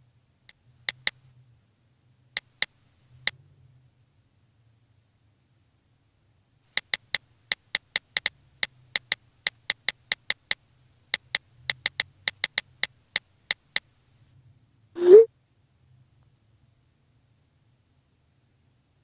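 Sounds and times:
phone keyboard taps: 6.8s - 8.3s, 11.2s - 13.9s.

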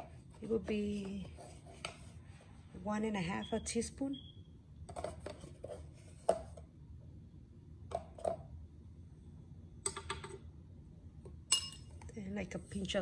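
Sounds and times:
plastic spoon tapping containers: 7.9s - 8.4s, 9.8s - 10.4s.

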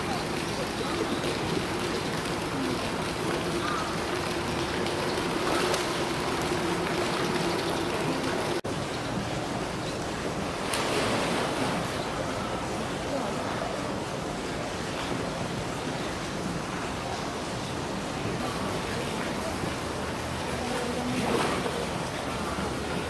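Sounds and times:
water sloshing and splashing: 0.0s - 13.0s.

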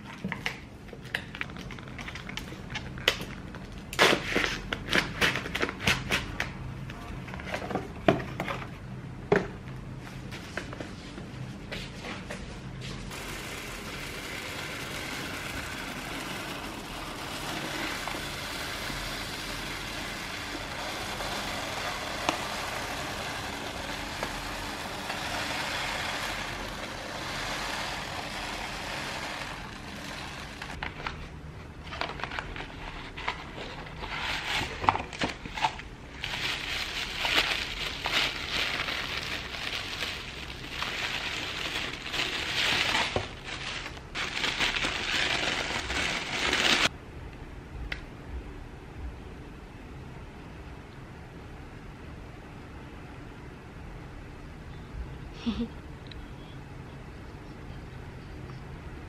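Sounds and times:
packaging crinkling: 31.9s - 46.9s.

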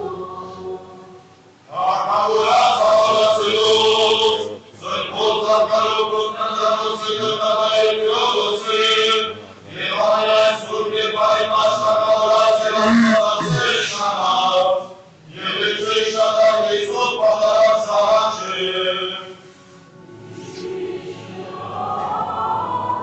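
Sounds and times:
liturgical chant: 0.0s - 23.0s.

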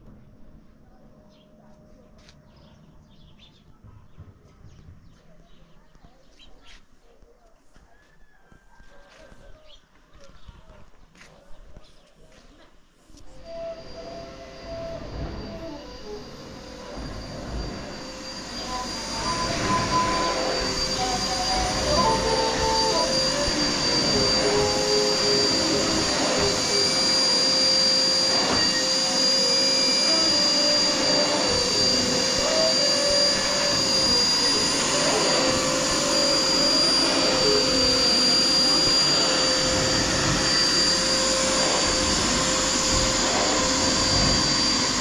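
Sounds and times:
vacuum cleaner on carpet: 13.1s - 45.0s.

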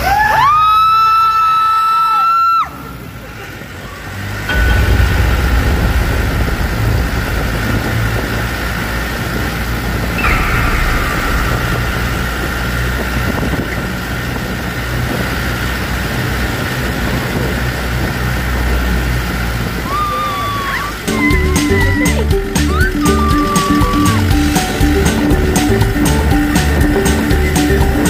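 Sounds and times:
vehicle engine and road rumble: 0.0s - 28.0s
high-pitched whine: 4.5s - 16.6s.

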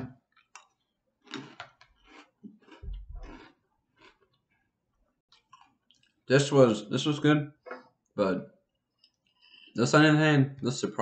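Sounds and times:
cereal being chewed: 0.3s - 6.3s.

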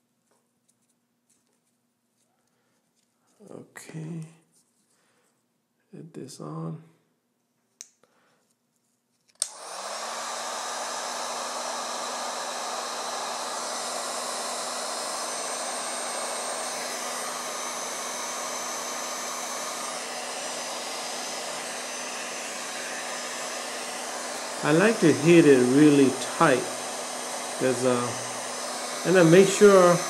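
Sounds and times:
heat gun switch click: 9.4s - 9.6s
heat gun fan blowing: 9.4s - 30.0s.

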